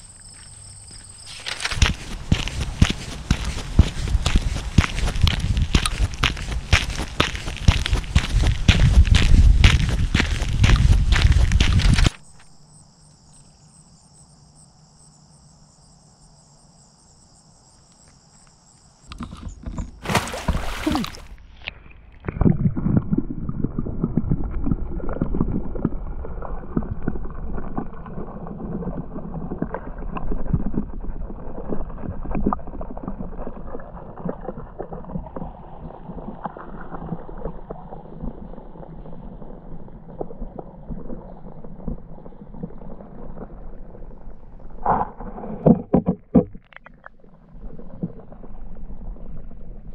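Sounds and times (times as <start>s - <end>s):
insects singing high drone: 12.3s - 19.1s
underwater river water rumbling: 19.1s - 49.9s.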